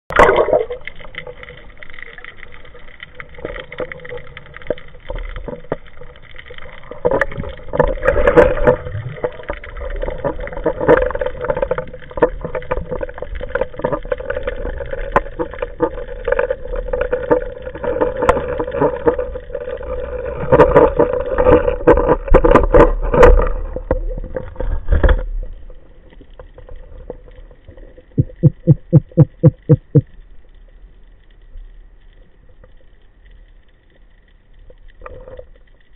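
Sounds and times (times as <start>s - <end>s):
rushing water underwater: 0.1s - 35.9s
low buzzing pulses: 28.1s - 32.0s.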